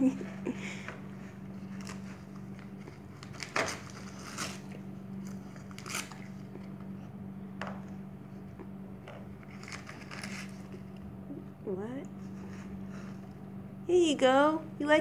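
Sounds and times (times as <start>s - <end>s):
dog tearing wrapping paper: 1.6s - 6.7s, 9.4s - 10.8s.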